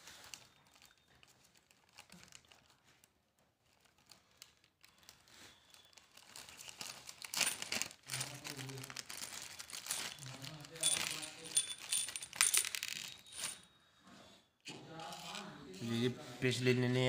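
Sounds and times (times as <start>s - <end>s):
plastic packet crinkling and tearing: 0.0s - 13.5s.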